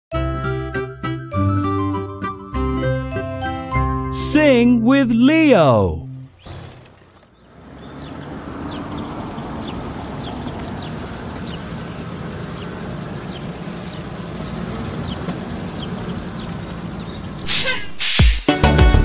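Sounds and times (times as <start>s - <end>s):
truck engines rumbling: 0.2s - 17.9s
birds chirping: 4.2s - 18.2s.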